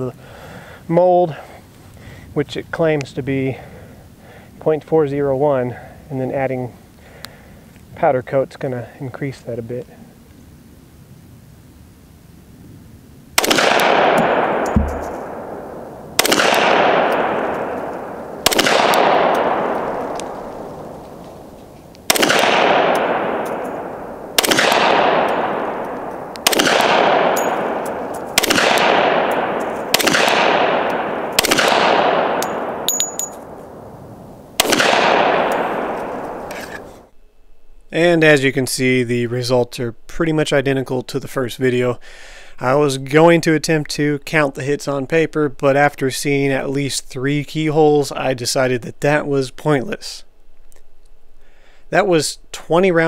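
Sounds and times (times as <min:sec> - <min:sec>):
pistol shots with echo: 0:13.4 - 0:21.1, 0:22.1 - 0:33.9, 0:34.6 - 0:37.0.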